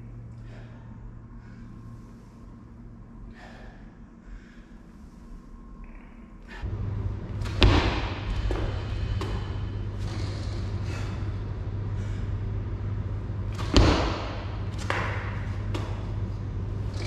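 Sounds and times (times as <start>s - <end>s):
steady low hum: 0.0s - 17.0s
heavy thud of feet landing: 7.4s - 11.0s, 13.5s - 16.0s.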